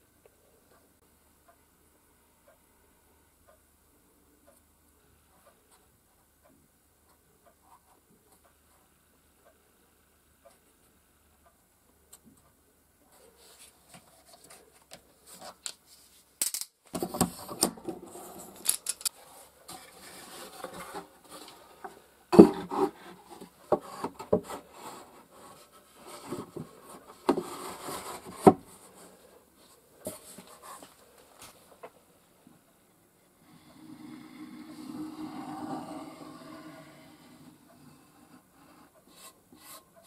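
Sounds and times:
wood rubbing and scraping: 17.1 - 31.9, 33.6 - 39.9.

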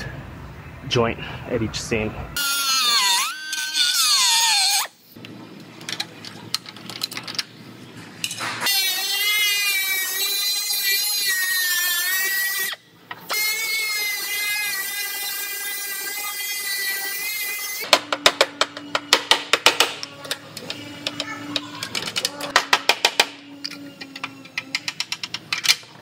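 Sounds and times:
cut-off tool whining: 2.4 - 5.0, 8.6 - 25.0.

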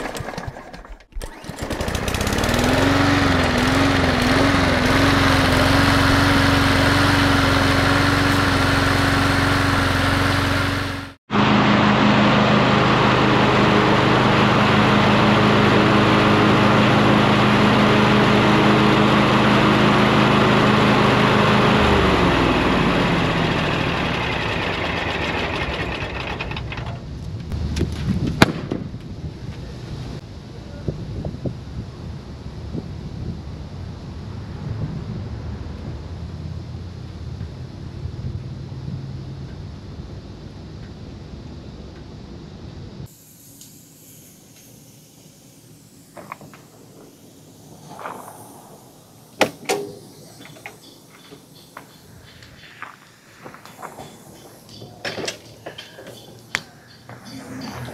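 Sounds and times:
riding mower engine running: 0.0 - 28.0, 43.0 - 57.9.

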